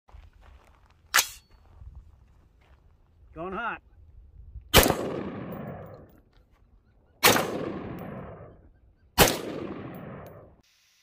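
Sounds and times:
rifle shots with echo: 0:04.7 - 0:06.1, 0:07.2 - 0:08.6, 0:09.2 - 0:10.6.

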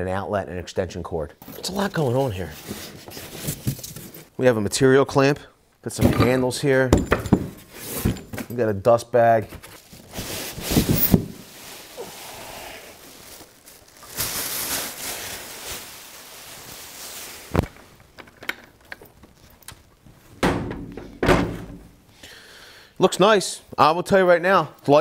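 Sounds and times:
plastic bag rustling: 0:09.5 - 0:20.3.

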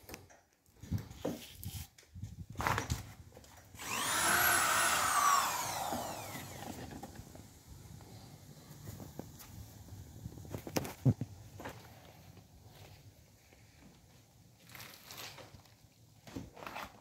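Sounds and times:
power tool whining: 0:03.7 - 0:08.2.

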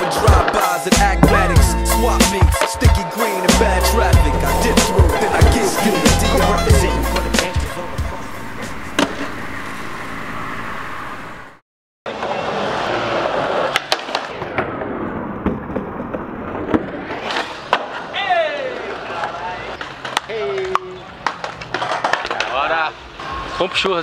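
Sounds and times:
skateboard scraping on concrete: 0:03.6 - 0:07.8
skateboard wheels rolling on pavement: 0:12.2 - 0:23.5
skateboard clacking: 0:19.2 - 0:22.7.

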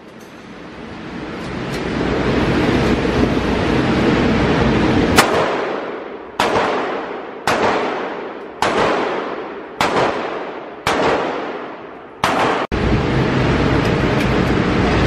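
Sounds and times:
echoing gunshots: 0:05.1 - 0:12.8.

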